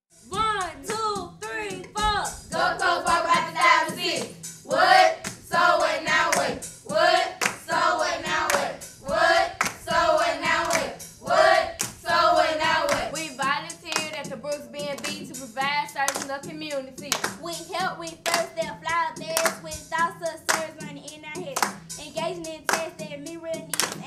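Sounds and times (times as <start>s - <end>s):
children chanting: 2.6s - 13.1s
hand claps: 4.1s - 4.4s, 5.2s - 5.4s, 6.3s - 6.6s, 7.4s - 7.7s, 8.4s - 8.8s, 9.6s - 9.8s, 10.6s - 10.9s, 11.8s - 12.0s, 12.8s - 13.2s, 13.9s - 14.3s, 14.9s - 15.4s, 16.0s - 16.5s, 17.1s - 17.5s, 18.2s - 19.8s, 20.5s - 20.8s, 21.5s - 21.9s, 22.7s - 23.0s, 23.6s - 24.0s.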